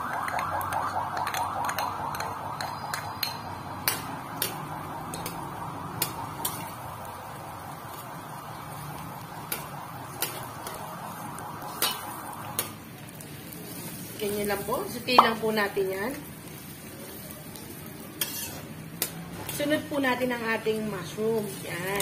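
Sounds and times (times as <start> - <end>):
garlic and onion sizzling in butter: 0.1 - 22.0
metal spoon clinking against pan: 1.2 - 4.5, 11.8 - 12.7, 18.1 - 19.7.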